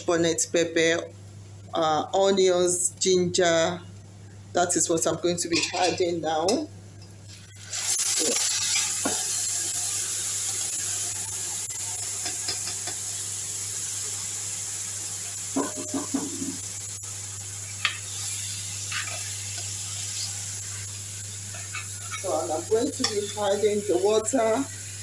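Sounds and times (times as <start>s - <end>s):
food sizzling in a pot: 5.4s - 25.0s
spoon scraping metal pot: 21.5s - 22.4s.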